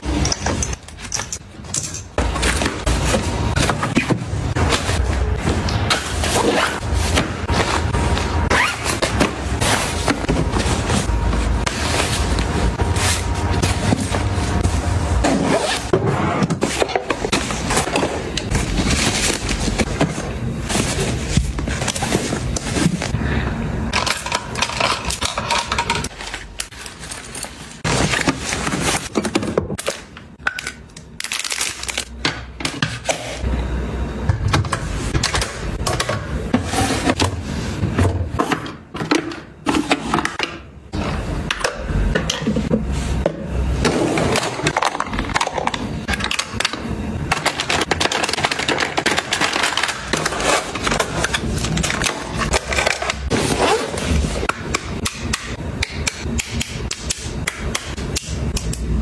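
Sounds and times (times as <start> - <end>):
plastic items clicking and clattering: 23.9 - 32.9, 44.3 - 53.3.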